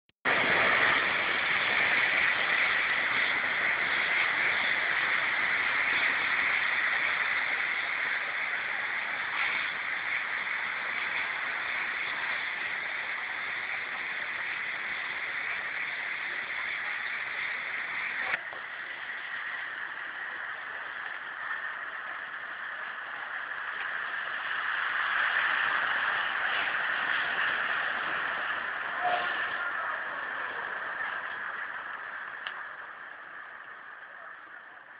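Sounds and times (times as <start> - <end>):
heavy rain on flooded street: 0.3 - 34.9.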